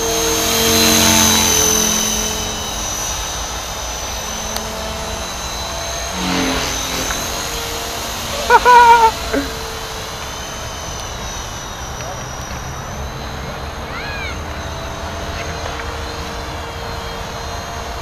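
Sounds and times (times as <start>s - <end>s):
rc helicopter motor whine: 0.0s - 18.0s
high-pitched cry: 8.4s - 9.6s, 13.9s - 14.4s.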